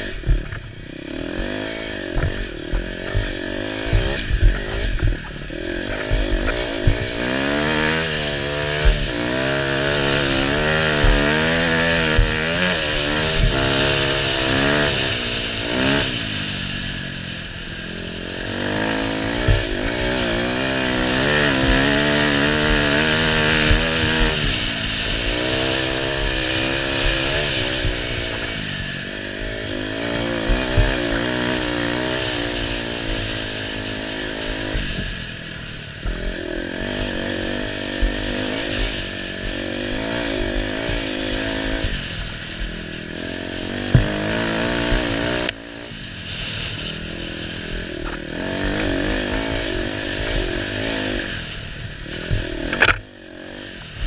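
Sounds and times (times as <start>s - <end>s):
dirt bike engine revving: 0.0s - 54.0s
bike knocking over bumps: 0.1s - 0.8s, 1.4s - 14.8s, 19.2s - 28.7s, 43.8s - 45.5s.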